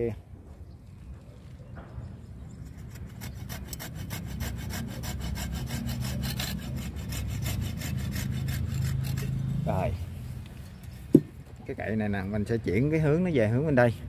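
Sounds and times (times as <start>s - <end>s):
hand saw cutting branch: 2.7s - 9.8s.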